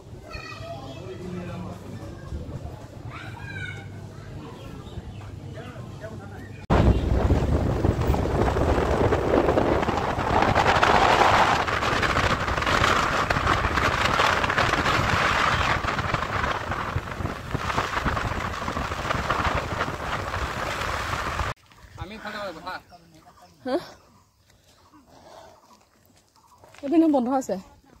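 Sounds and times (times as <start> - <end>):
road rumble: 0.0 - 21.6
wind buffeting microphone: 6.7 - 21.6.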